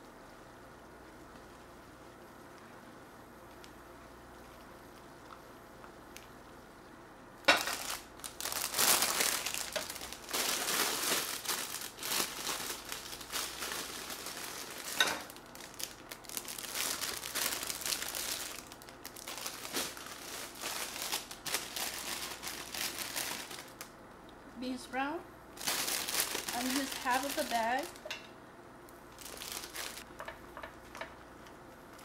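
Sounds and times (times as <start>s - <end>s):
plastic bag crackling: 7.4s - 23.9s, 25.6s - 28.1s, 29.1s - 30.1s.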